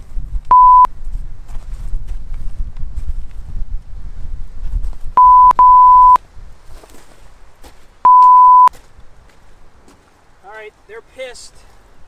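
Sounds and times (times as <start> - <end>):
censor bleeps: 0.5 - 0.9, 5.2 - 6.2, 8.1 - 8.7.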